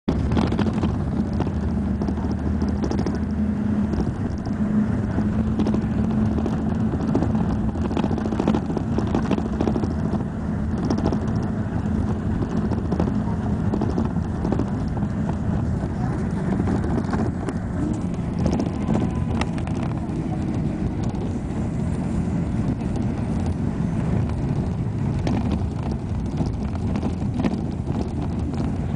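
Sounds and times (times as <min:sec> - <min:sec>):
road noise: 0:00.0 - 0:28.9
vehicle engine humming: 0:00.0 - 0:28.9
light rattles and clicks: 0:00.1 - 0:28.9.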